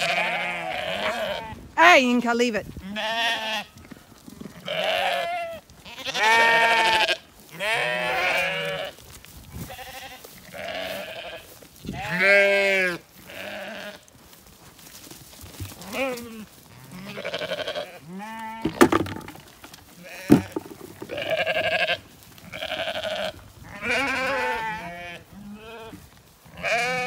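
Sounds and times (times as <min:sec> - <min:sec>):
sheep bleating: 0:00.0 - 0:01.6, 0:02.8 - 0:03.8, 0:04.4 - 0:09.0, 0:09.6 - 0:14.0, 0:15.8 - 0:18.8, 0:20.0 - 0:27.0
sharp knocks: 0:18.6 - 0:19.5, 0:20.3 - 0:21.2.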